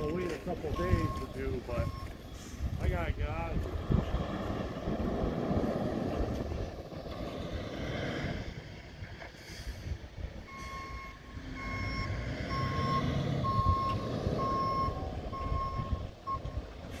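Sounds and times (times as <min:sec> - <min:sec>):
truck backup alarm beeping: 0:00.0 - 0:02.8, 0:10.3 - 0:17.0
low rumble: 0:00.0 - 0:17.0.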